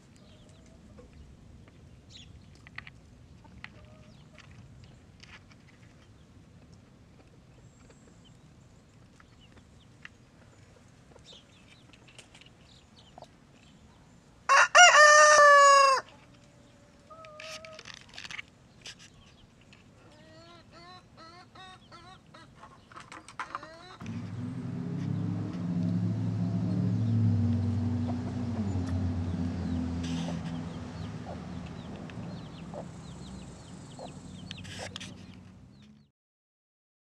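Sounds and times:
rooster crowing: 0:14.5 - 0:16.1
chicken calls: 0:14.5 - 0:17.9, 0:20.0 - 0:24.2, 0:29.6 - 0:35.2.

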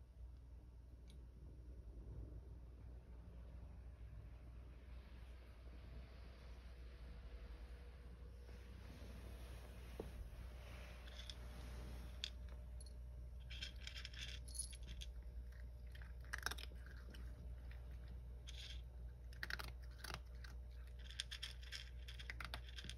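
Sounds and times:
cat crunching dry kibble: 0:13.4 - 0:22.9.

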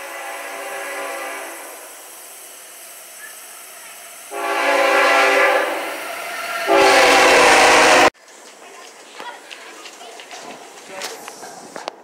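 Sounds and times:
locomotive air horn blasts: 0:00.0 - 0:01.8, 0:04.3 - 0:08.2
train rumbling: 0:00.0 - 0:12.0.

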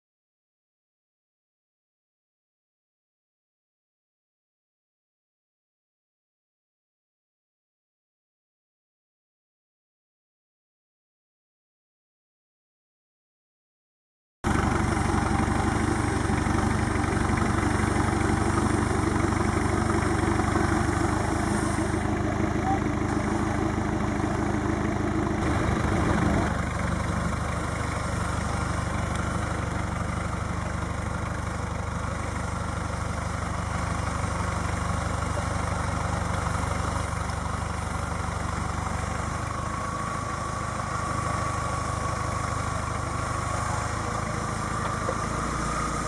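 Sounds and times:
diesel engine idling: 0:14.5 - 0:46.0.

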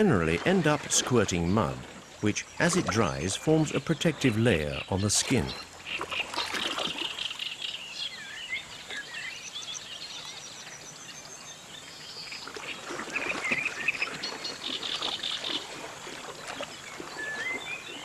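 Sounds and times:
birds chirping and trilling: 0:00.4 - 0:12.5
elephant splashing in water: 0:05.4 - 0:07.2, 0:12.4 - 0:18.0.

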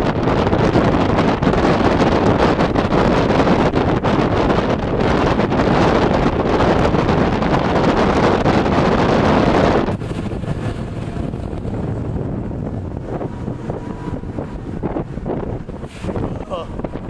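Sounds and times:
wind buffeting microphone: 0:00.0 - 0:17.0
outboard motors humming: 0:08.4 - 0:17.0.

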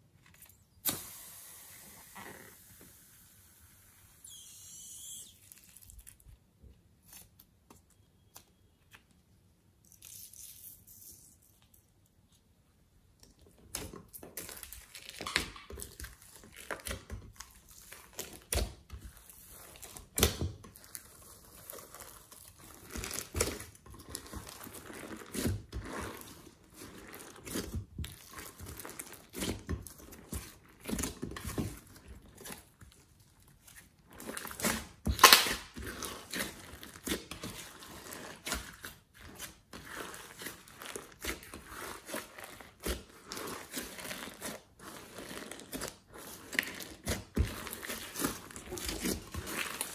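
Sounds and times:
slime crinkling and crackling: 0:04.2 - 0:07.6, 0:13.4 - 0:49.9.

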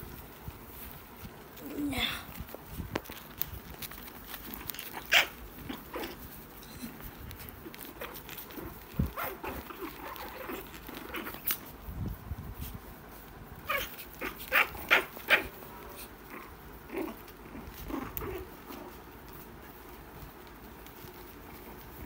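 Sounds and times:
puppies yapping and barking: 0:03.6 - 0:11.8, 0:13.6 - 0:22.0.

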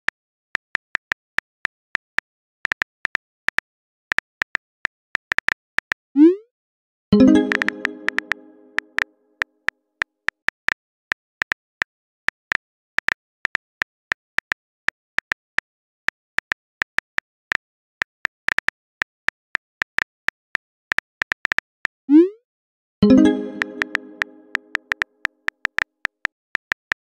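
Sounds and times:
phone keyboard typing clicks: 0:07.2 - 0:09.0, 0:23.0 - 0:25.0.

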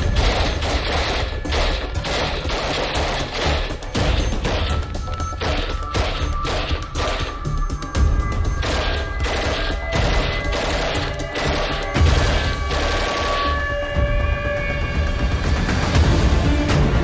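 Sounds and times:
machine gun firing rapid shots: 0:00.0 - 0:04.8, 0:08.6 - 0:13.5.

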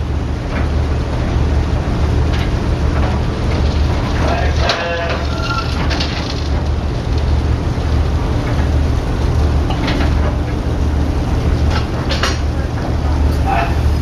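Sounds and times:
constant noisy hiss: 0:00.0 - 0:14.0
ferry engines rumbling: 0:00.0 - 0:14.0.

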